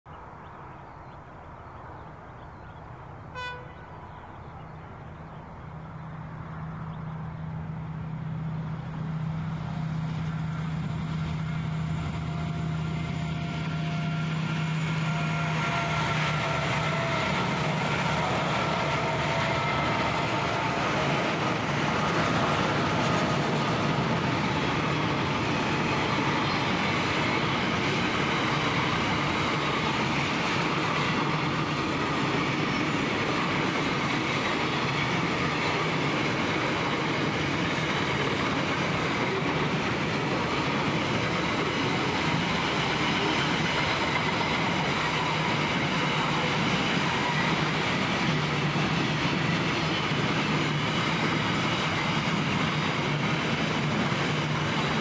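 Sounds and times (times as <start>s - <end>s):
diesel locomotive engine drone: 0.1s - 55.0s
train wagons rumbling by: 1.7s - 55.0s
train horn toot: 3.3s - 3.9s, 10.6s - 21.1s.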